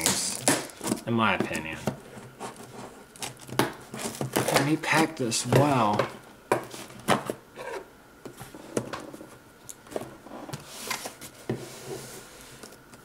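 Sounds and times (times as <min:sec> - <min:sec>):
cardboard and tape rustling: 0:00.0 - 0:12.8
rustling scrape: 0:09.9 - 0:12.7.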